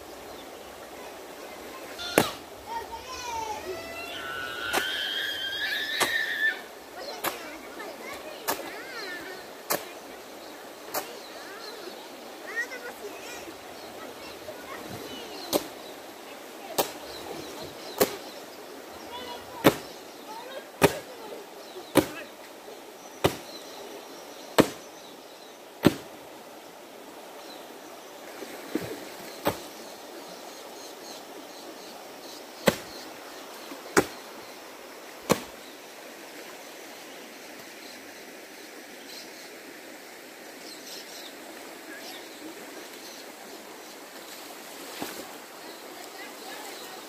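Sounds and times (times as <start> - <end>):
flowing river water: 0.0 - 47.0
sharp knocks or slaps: 19.6 - 19.9, 20.8 - 21.0, 22.0 - 22.2, 23.2 - 23.5, 24.6 - 24.8, 25.8 - 26.1, 32.6 - 32.9, 35.3 - 35.5.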